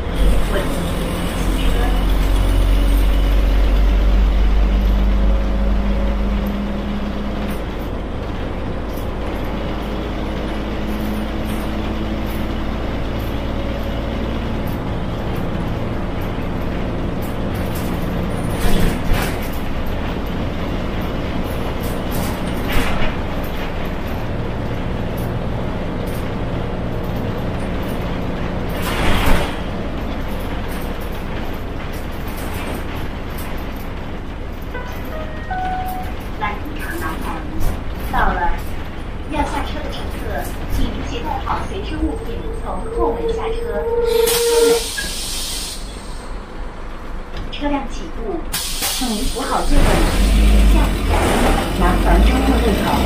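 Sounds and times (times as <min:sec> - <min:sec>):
bus engine running: 0:00.0 - 0:53.0
air brake hisses: 0:44.1 - 0:46.4, 0:48.5 - 0:49.7.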